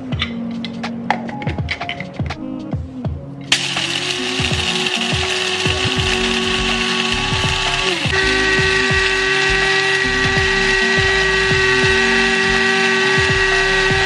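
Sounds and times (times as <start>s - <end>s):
coffee grinder motor whine: 3.5s - 14.0s.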